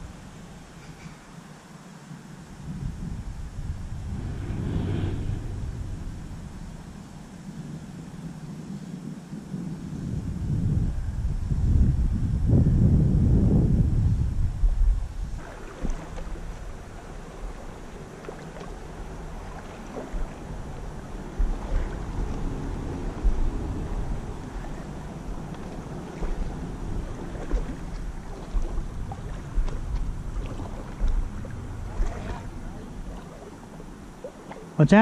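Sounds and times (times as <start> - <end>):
wind buffeting microphone: 2.2 - 35.0
faint splashes: 15.4 - 34.8
water sloshing from wading: 15.4 - 34.8.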